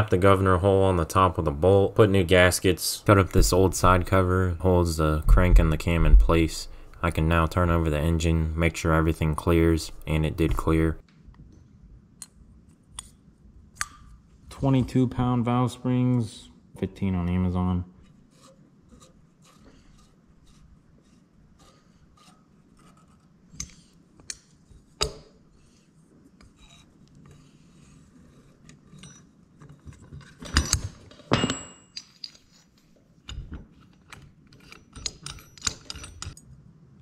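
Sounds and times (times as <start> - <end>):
metallic clicks and clinks of tools: 29.9 - 32.5, 33.3 - 36.5
ringing metal clank: 30.5 - 32.2.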